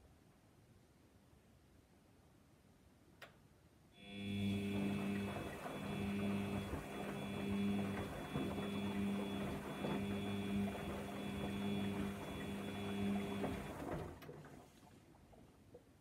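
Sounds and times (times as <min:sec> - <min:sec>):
washing machine motor hum: 0:04.0 - 0:15.4
laundry rustling and knocking: 0:04.8 - 0:14.7.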